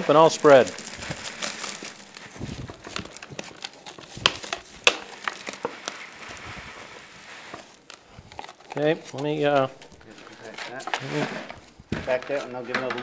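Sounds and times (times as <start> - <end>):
soil pouring hiss: 0.0 - 2.8, 5.1 - 8.3.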